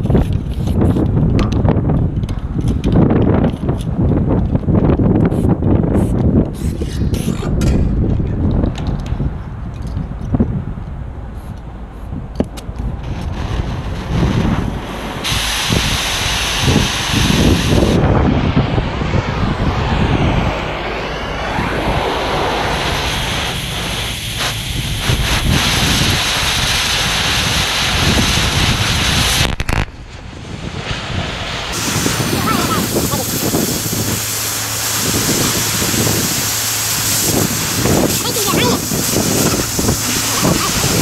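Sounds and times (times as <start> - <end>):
wind buffeting microphone: 0.0 - 41.0
large engine running: 12.7 - 26.5, 31.2 - 41.0
loud hiss: 13.0 - 41.0.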